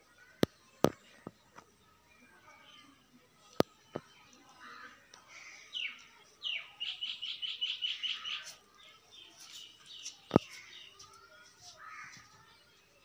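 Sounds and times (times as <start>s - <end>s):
birds chirping: 2.5s - 12.8s.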